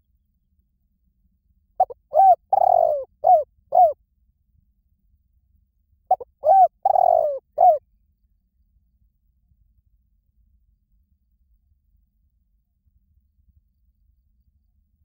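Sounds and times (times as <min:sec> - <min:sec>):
dove cooing: 0:01.8 - 0:04.0, 0:06.1 - 0:07.8.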